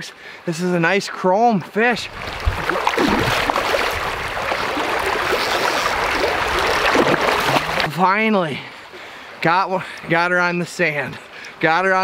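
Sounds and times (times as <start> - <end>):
river water rushing: 2.0 - 8.0.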